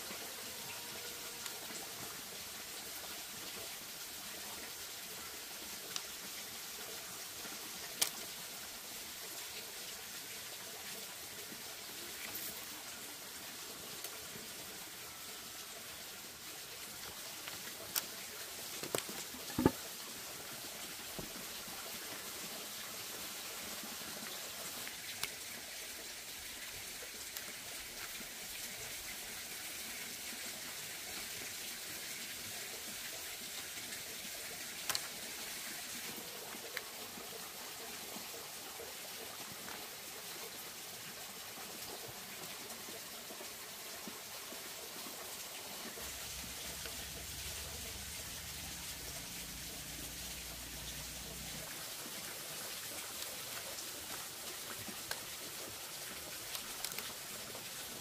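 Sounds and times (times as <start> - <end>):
steady water-like hiss: 0.0 - 58.0
bamboo strips clicking: 7.9 - 8.2, 34.8 - 35.2.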